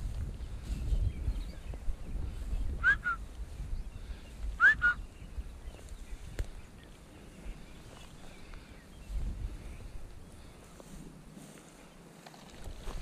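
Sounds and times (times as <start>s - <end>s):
wind rumble on microphone: 0.0s - 13.0s
short whistled notes: 2.8s - 3.2s, 4.6s - 5.0s.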